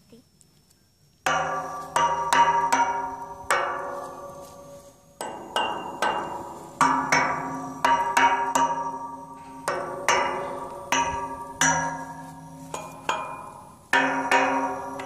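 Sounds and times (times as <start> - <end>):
stick striking metal pipe railing: 1.3 - 15.0.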